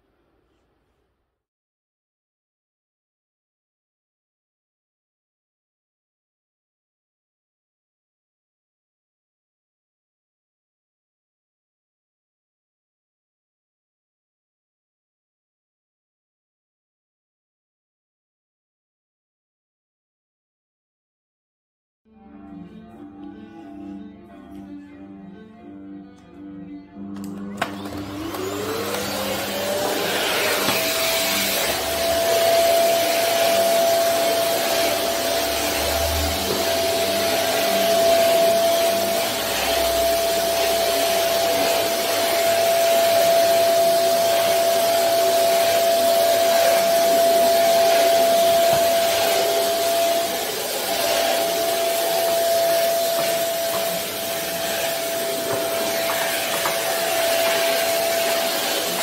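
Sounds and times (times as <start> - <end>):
vacuum cleaner motor whine: 26.8 - 59.0.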